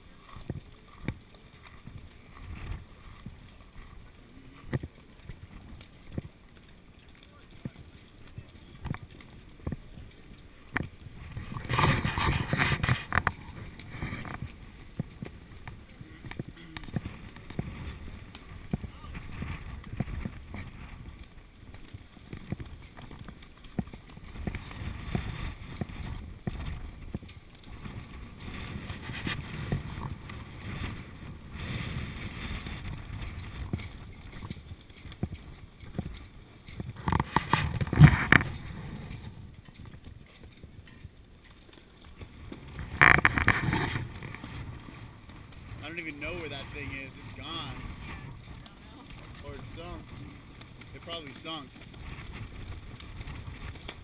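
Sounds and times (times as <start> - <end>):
footsteps on wet asphalt: 0.0 - 54.0
people talking: 18.8 - 19.2, 45.8 - 50.1, 50.9 - 51.7.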